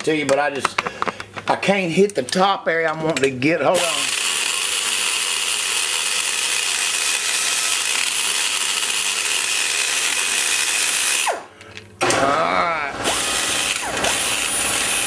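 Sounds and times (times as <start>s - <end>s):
die grinder whining: 3.7s - 15.0s
die grinder winding down: 3.8s - 11.4s, 12.0s - 15.0s.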